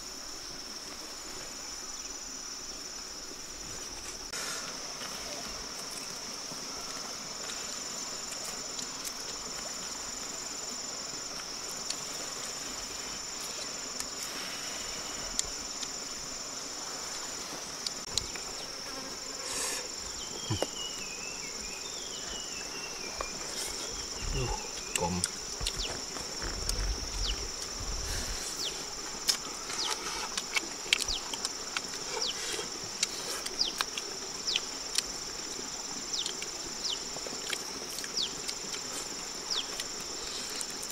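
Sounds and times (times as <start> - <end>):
insects trilling: 0.0 - 40.9
clicks and smacks of eating: 29.2 - 35.1, 36.2 - 36.6, 37.2 - 38.9.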